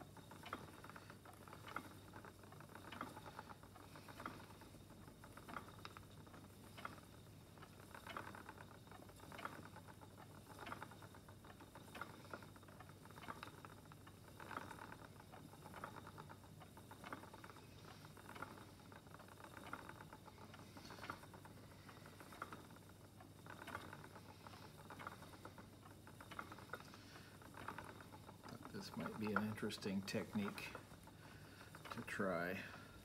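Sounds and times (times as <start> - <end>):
spinning wheel clicks and rustles: 0.0 - 33.0.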